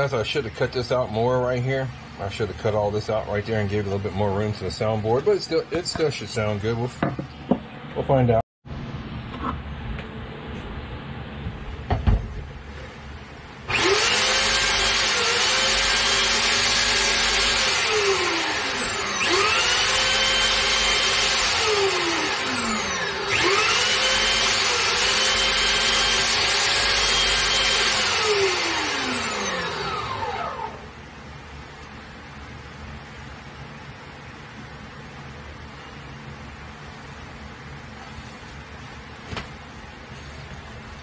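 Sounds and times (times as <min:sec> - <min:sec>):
electric sander whining: 0:13.7 - 0:30.8.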